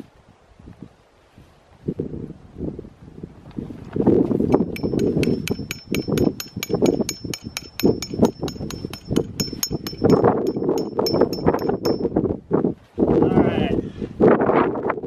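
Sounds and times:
hammer striking metal tent stake: 4.5s - 12.1s.

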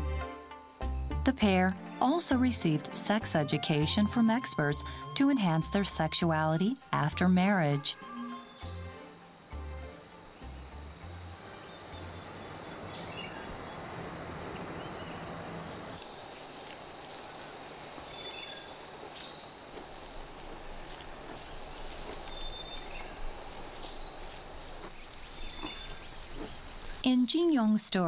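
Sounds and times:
high-pitched insect drone: 8.0s - 27.0s
soft hiss: 16.0s - 27.1s.

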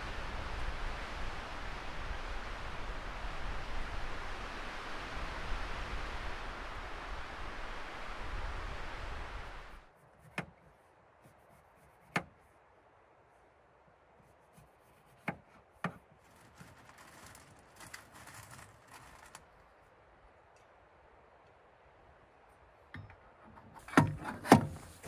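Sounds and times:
wind noise on microphone: 0.0s - 9.9s
faint scraping and rustling: 14.1s - 20.8s, 22.5s - 25.0s.

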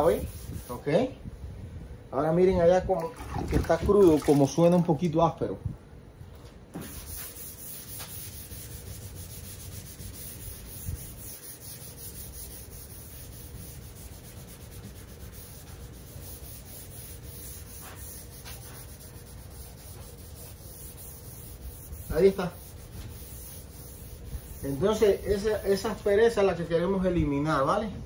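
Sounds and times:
hand rubbing car hood: 6.8s - 26.1s.

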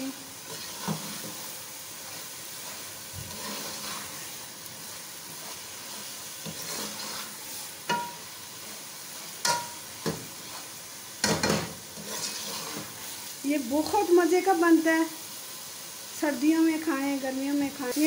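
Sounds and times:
oil sizzling in pot: 0.0s - 18.0s
metal spoon scraping: 0.4s - 1.4s, 2.7s - 4.3s, 5.4s - 8.2s, 9.4s - 13.0s
spoon clinking against pot: 9.4s - 9.8s.

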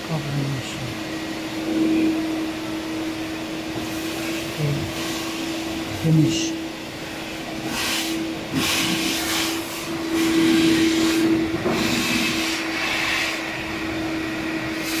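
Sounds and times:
machine hum: 0.0s - 15.0s
rushing hiss: 3.8s - 13.6s, 14.7s - 15.0s.

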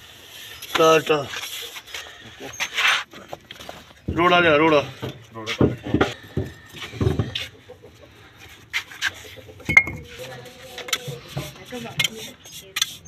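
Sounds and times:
trowel scraping mortar on brickwork: 0.0s - 3.3s, 8.7s - 13.0s.

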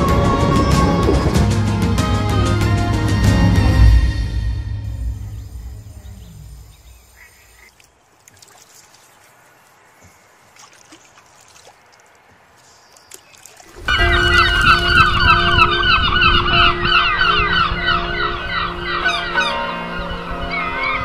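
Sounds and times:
low rumble: 2.9s - 7.4s, 13.8s - 19.1s
flock of birds calling: 5.2s - 8.0s, 12.5s - 21.0s.

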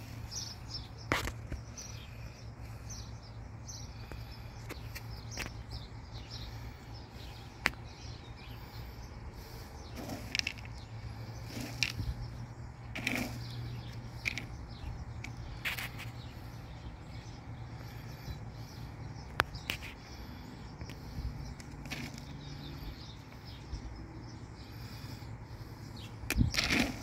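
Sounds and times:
steady low hum: 0.0s - 27.0s
dry kibble rustling: 10.0s - 12.3s.

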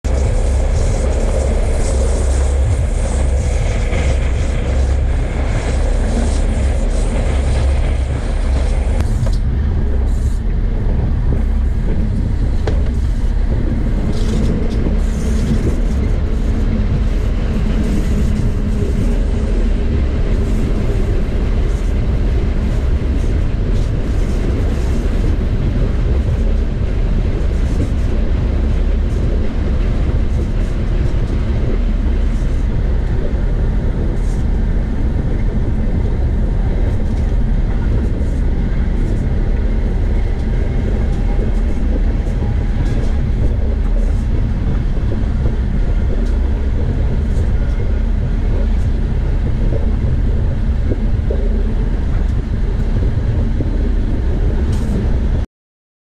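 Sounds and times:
wind buffeting microphone: 0.0s - 55.4s.

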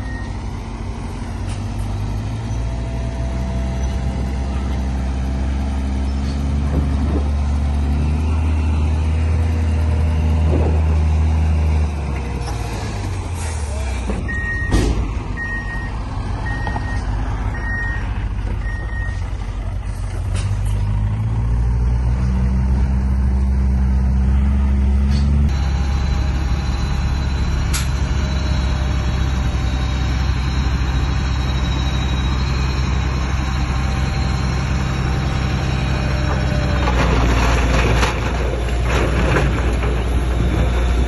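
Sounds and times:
heavy machinery diesel engines: 0.0s - 41.0s
reversing alarm beeping: 14.2s - 19.2s, 25.5s - 36.8s.

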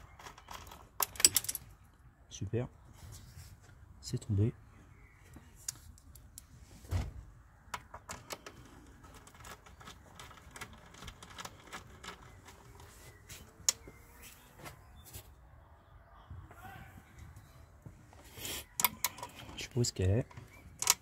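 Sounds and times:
small parts clicking and tapping: 0.0s - 1.7s, 7.7s - 12.9s, 18.8s - 19.6s, 20.2s - 21.0s.

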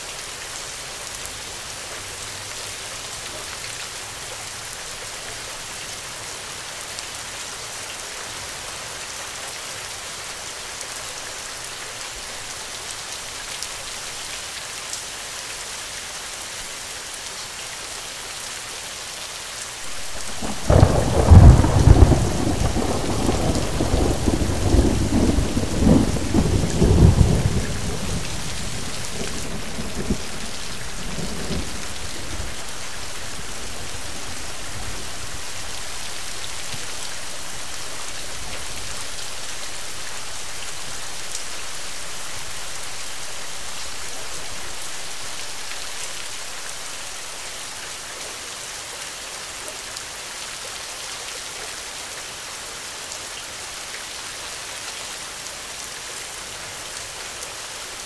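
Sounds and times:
steady rain: 0.0s - 58.0s
thunder rumbling: 19.9s - 36.0s.

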